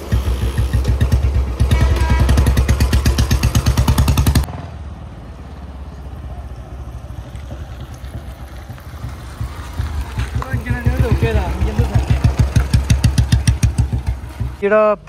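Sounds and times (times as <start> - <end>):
motorcycle engine thumping: 0.0 - 4.6, 7.5 - 14.8.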